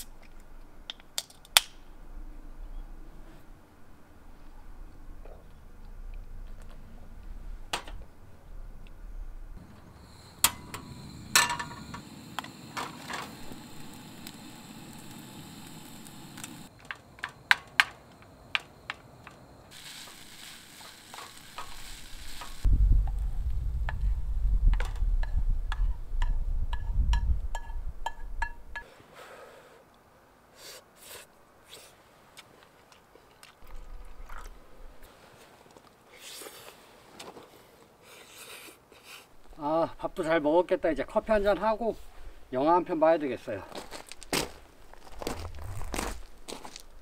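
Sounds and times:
low rumble with regular ticks: 4.4s - 9.8s, 22.6s - 27.6s
hiss: 9.6s - 16.7s, 19.7s - 24.1s, 30.5s - 32.0s.

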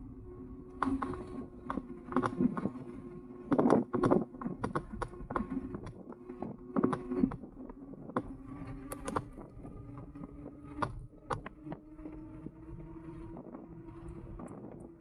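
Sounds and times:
electric bike motor whine: 0.0s - 15.0s.

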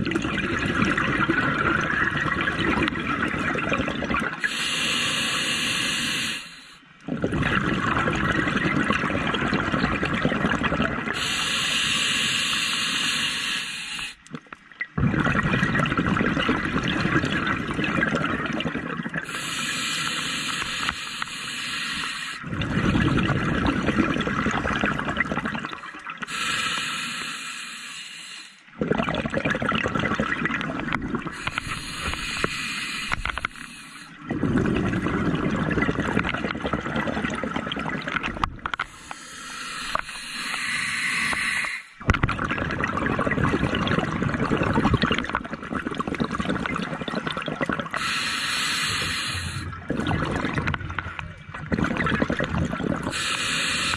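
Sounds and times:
exhaled bubbles rushing: 0.0s - 4.5s, 7.0s - 11.2s, 14.8s - 19.3s, 22.4s - 26.3s, 28.7s - 32.5s, 34.1s - 39.0s, 42.0s - 48.1s, 49.3s - 53.3s
hissing regulator inhale: 4.4s - 6.8s, 11.2s - 14.2s, 19.2s - 22.4s, 26.2s - 28.7s, 31.3s - 34.2s, 38.8s - 42.0s, 47.9s - 49.8s, 53.1s - 53.9s.

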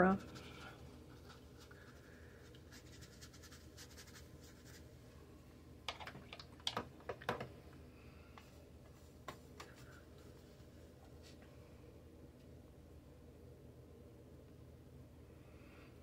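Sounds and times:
brush strokes on paper: 0.1s - 4.9s.

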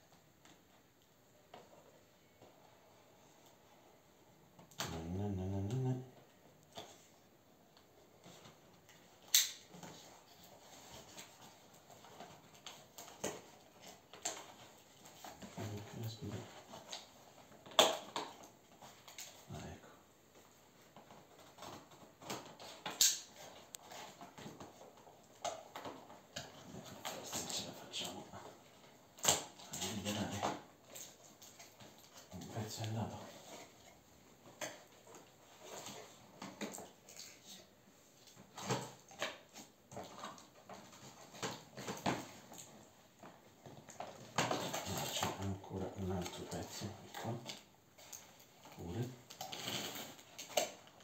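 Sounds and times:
plastic packaging snap: 9.2s - 9.7s, 22.2s - 23.4s
packaging rustling and scraping: 20.4s - 51.0s
packaging rustling and clicking: 38.2s - 51.0s.

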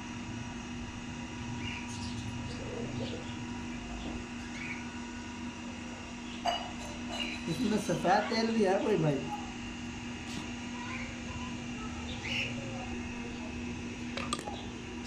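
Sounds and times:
steady hum: 0.0s - 15.0s
small birds chirping: 1.5s - 5.0s, 7.1s - 7.7s, 11.8s - 13.4s.

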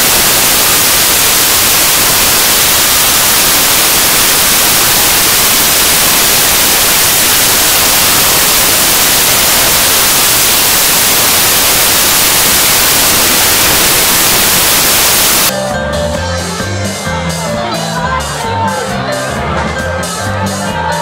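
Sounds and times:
loud static hiss: 0.0s - 15.5s.

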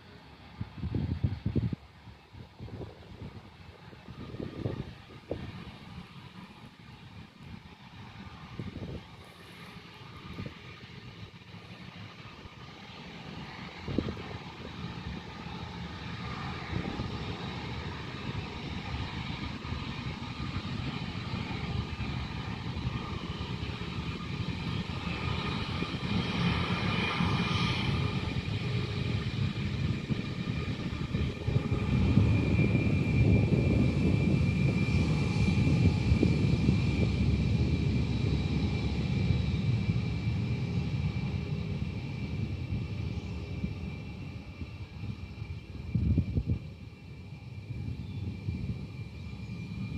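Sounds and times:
jet engines rumbling and whining: 0.0s - 49.9s.

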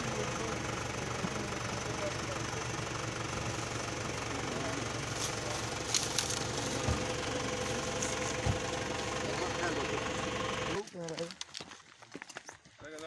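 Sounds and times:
vehicle engine idling: 0.0s - 11.4s
low thumps: 8.2s - 8.9s.

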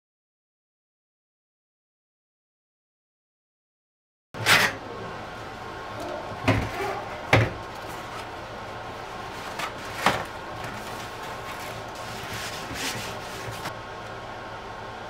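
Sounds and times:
toilet paper rustling: 6.0s - 13.8s
paper rubbing on whiteboard: 10.8s - 13.7s.

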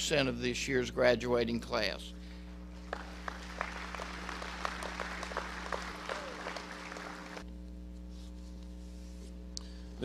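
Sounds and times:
electrical hum: 0.0s - 10.0s
audience applauding: 2.8s - 7.4s.

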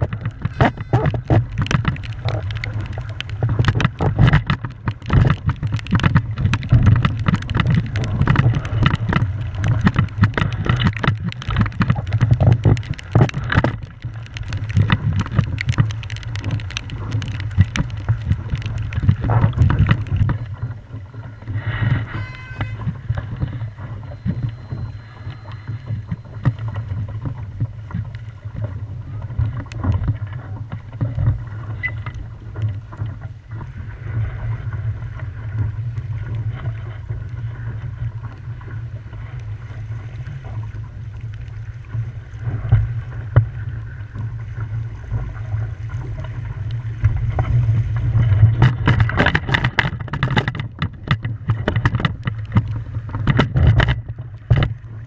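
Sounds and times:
sharp splashes and knocks: 0.0s - 20.8s, 45.2s - 55.0s
water rushing against hull: 0.0s - 55.0s.

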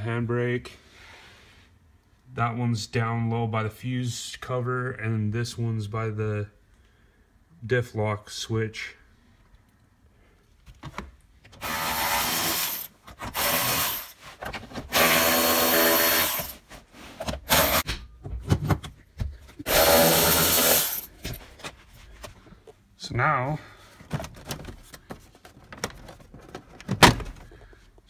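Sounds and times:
drill-driver spinning out bolts: 11.6s - 14.2s, 14.9s - 16.6s, 17.5s - 17.8s, 19.7s - 21.1s.

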